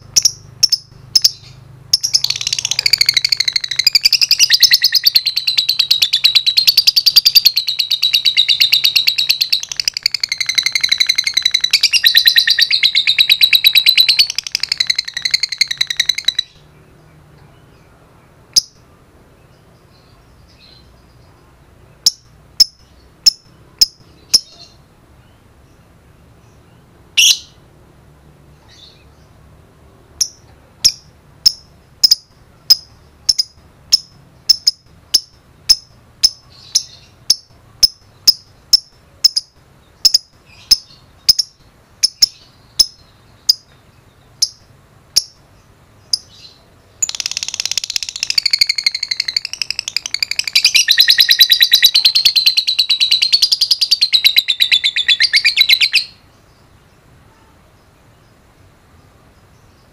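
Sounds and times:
bird chirping: 0.0 - 27.7, 28.5 - 59.9
bird rapid chatter: 0.2 - 16.6, 46.2 - 56.2.

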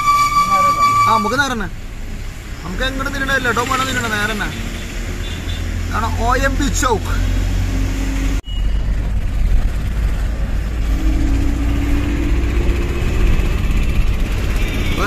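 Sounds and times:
road noise: 0.0 - 15.0
truck diesel engine rumble: 5.2 - 15.0.

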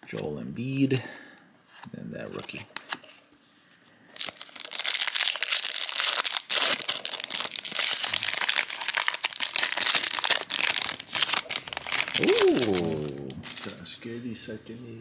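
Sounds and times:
foil wrapper crinkling: 4.1 - 13.9.

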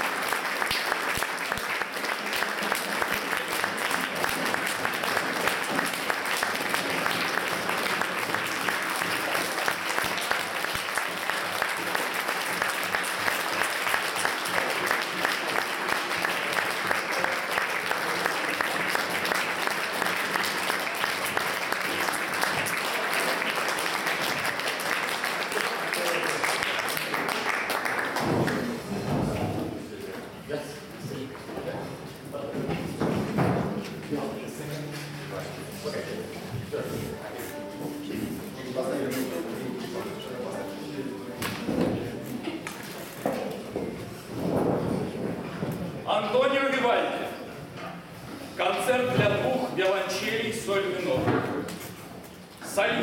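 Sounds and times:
audience applauding: 0.0 - 29.0.

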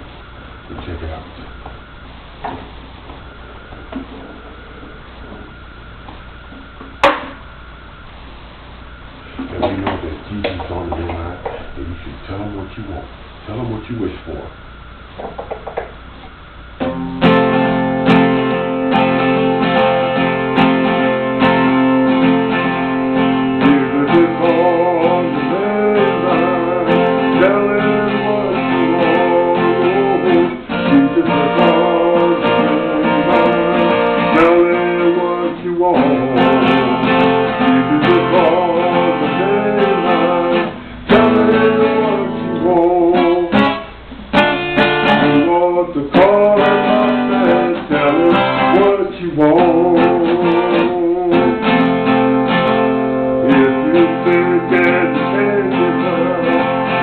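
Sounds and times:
acoustic guitar strummed and picked: 16.8 - 57.0.

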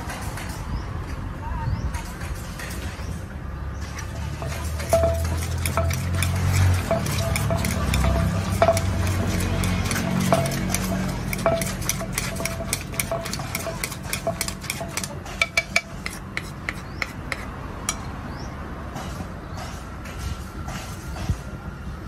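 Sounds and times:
wooden pestle knocking in mortar: 4.4 - 18.1.

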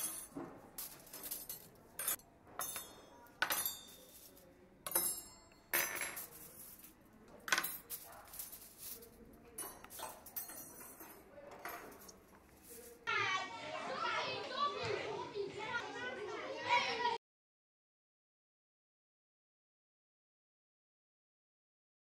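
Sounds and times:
cutlery and dishes clinking: 0.0 - 13.0.

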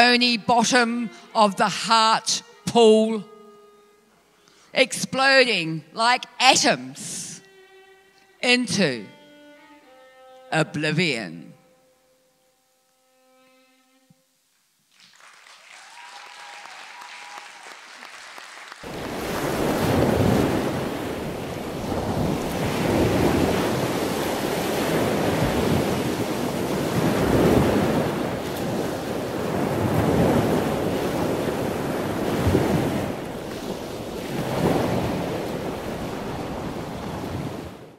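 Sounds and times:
loud rushing surf noise: 18.9 - 37.9.

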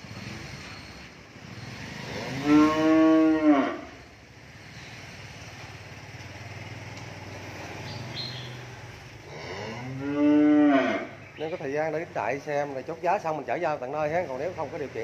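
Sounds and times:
cow mooing: 2.0 - 4.0, 9.2 - 11.2.

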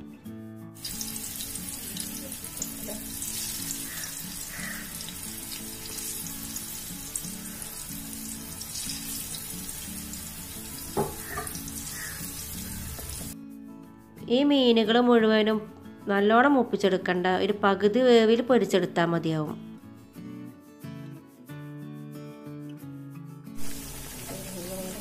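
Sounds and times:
fish sizzling in oil: 0.8 - 13.4, 23.6 - 25.0.

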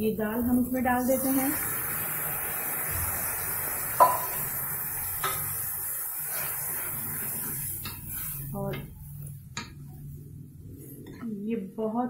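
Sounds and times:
food sizzling in a pan: 0.1 - 9.4.

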